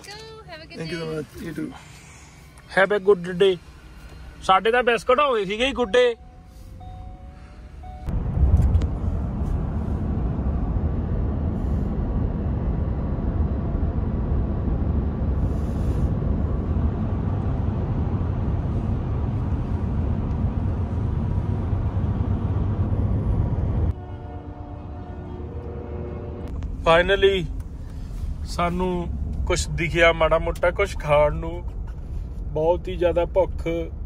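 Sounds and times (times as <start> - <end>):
road and wind noise rumble: 0.0 - 34.0.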